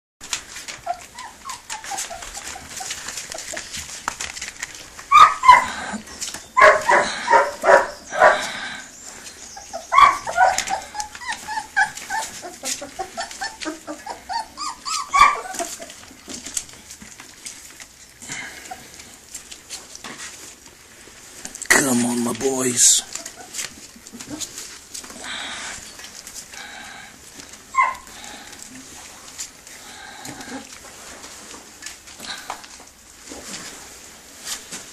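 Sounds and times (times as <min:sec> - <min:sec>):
small clicks of eating: 0:00.2 - 0:07.4, 0:08.4 - 0:21.7, 0:23.0 - 0:33.8
puppies whining and yipping: 0:00.3 - 0:17.8, 0:23.1 - 0:25.0, 0:27.3 - 0:28.6.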